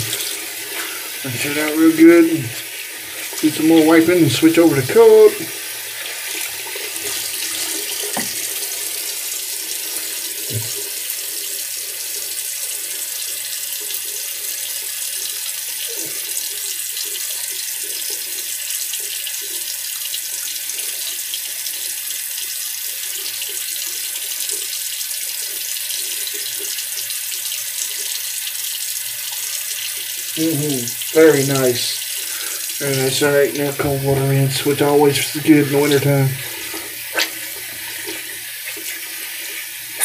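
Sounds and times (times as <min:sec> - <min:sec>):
tap running into sink: 0:07.0 - 0:08.7, 0:10.4 - 0:10.8
water splashed on face: 0:36.6 - 0:39.0.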